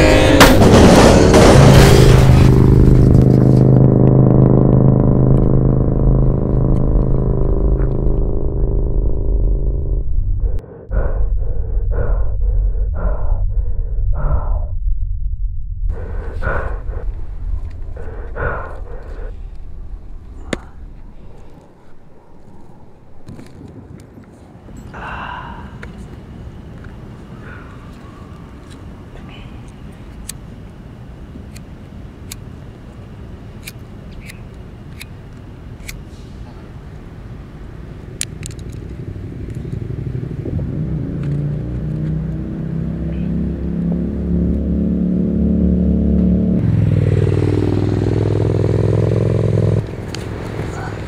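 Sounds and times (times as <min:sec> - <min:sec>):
held drone tone: 0:00.0 - 0:23.6, 0:42.3 - 0:49.9
low steady rumble: 0:00.0 - 0:50.9
man gasping breaths: 0:10.6 - 0:13.6, 0:15.9 - 0:21.9, 0:24.9 - 0:25.9.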